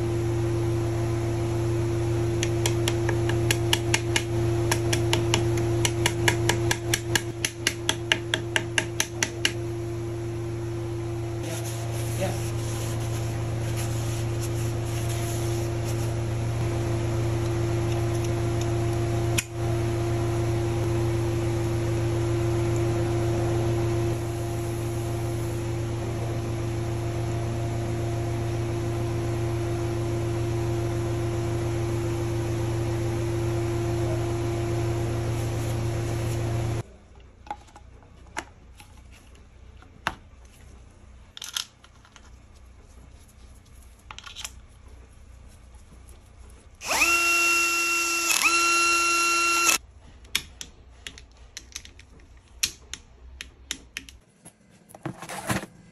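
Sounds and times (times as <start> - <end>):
machine hum: 44.8 - 49.8.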